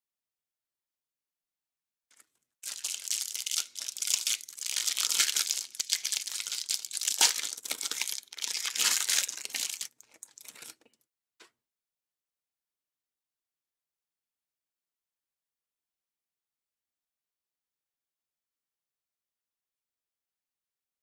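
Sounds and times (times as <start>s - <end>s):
cellophane wrapper crinkling: 2.1s - 11.0s.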